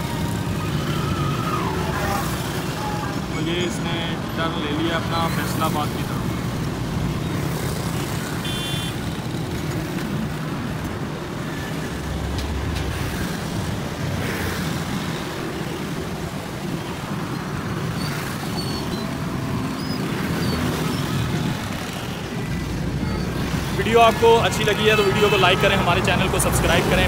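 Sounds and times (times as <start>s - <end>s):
road traffic rumble: 0.0s - 27.0s.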